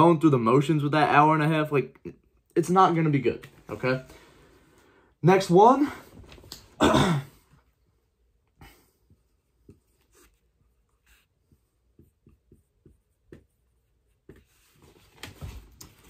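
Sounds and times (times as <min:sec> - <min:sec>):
marker writing on whiteboard: 0:09.0 - 0:14.8.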